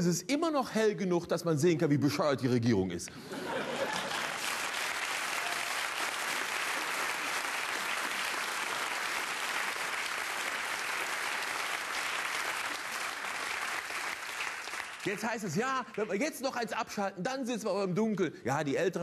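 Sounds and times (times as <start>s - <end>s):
audience laughter: 3.2s - 4.5s
audience applauding: 3.4s - 16.2s.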